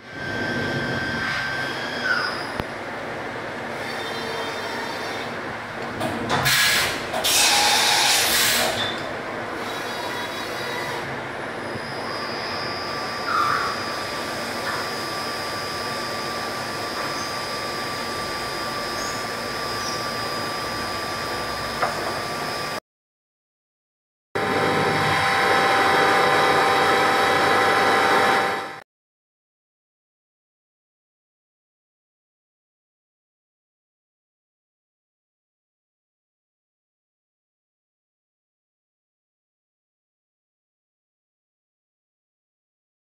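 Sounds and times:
thin high whine: 0.0s - 2.9s, 6.9s - 22.8s
milling machine cutting metal: 6.4s - 22.8s, 24.4s - 28.8s.

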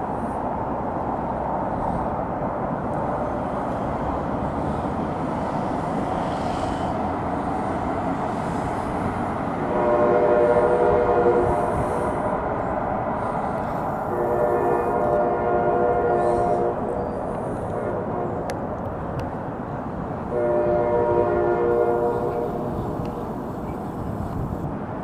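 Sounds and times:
train rolling past: 0.0s - 25.0s
train horn: 9.6s - 12.4s, 14.0s - 17.0s, 17.7s - 18.6s, 20.3s - 23.1s.

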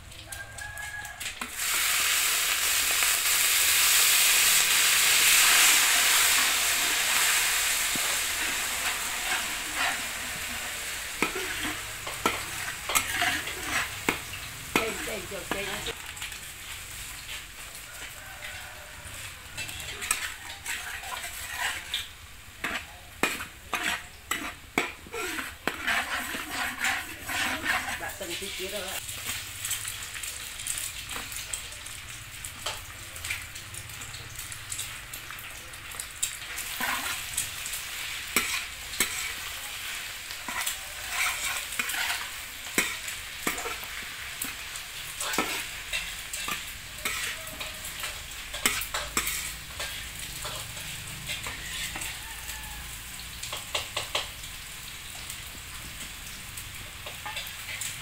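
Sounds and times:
vegetables sizzling in a wok: 0.0s - 58.0s
metal spatula scraping a wok: 1.4s - 16.0s, 16.7s - 29.4s, 36.3s - 52.7s, 56.9s - 58.0s.

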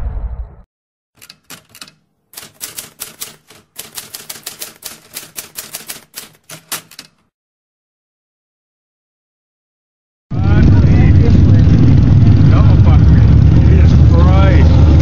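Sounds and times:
typewriter key clacks: 1.2s - 7.3s.

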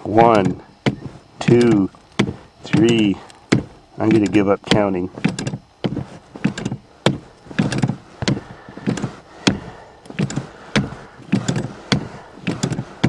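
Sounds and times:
accelerator pedal click and clunk: 0.0s - 13.0s.

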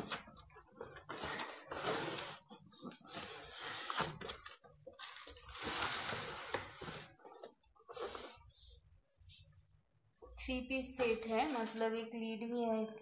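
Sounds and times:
cardboard rubbing and scraping: 1.0s - 7.2s.

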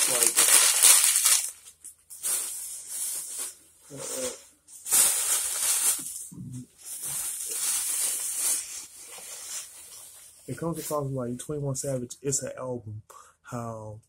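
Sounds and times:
rustling handling noise: 0.0s - 11.1s
low mumbles: 6.3s - 6.7s.

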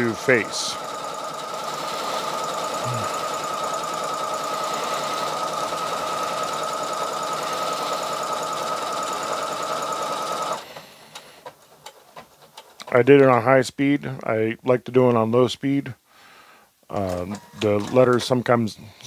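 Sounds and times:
sewing machine whirring: 0.0s - 12.9s.

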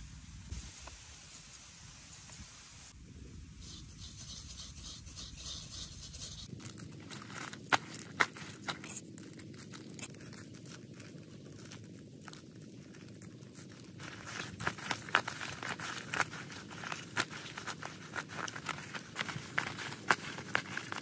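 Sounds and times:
hands rubbing food: 3.8s - 21.0s
leaf crinkling and rustling: 6.3s - 21.0s.

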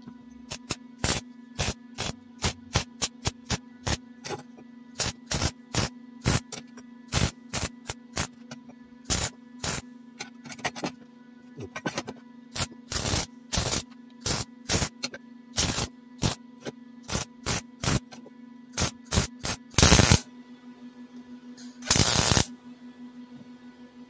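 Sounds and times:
steady welder hum: 0.0s - 24.0s
welder tack welds: 0.5s - 4.0s, 5.0s - 8.4s, 9.1s - 9.8s, 12.6s - 14.9s, 15.6s - 16.4s, 17.1s - 18.1s, 18.8s - 20.2s, 21.8s - 22.5s.

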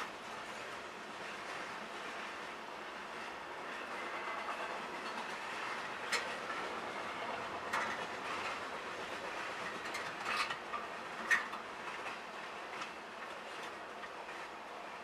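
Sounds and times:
train wheels rumbling on rails: 0.0s - 15.0s
wheels clacking on rail joints: 0.0s - 15.0s.

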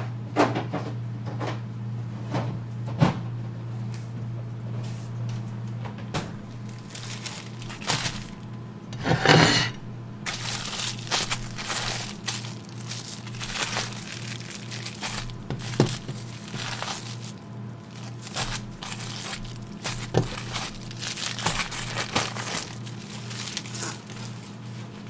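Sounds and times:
low steady hum: 0.0s - 25.0s
plastic package crinkling: 6.5s - 8.6s, 10.2s - 25.0s.

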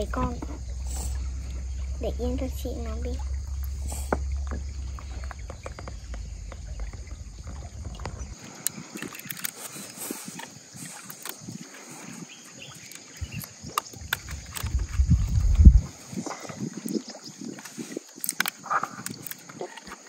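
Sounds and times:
wind rumble on microphone: 0.0s - 19.8s
water lapping: 0.0s - 20.0s.

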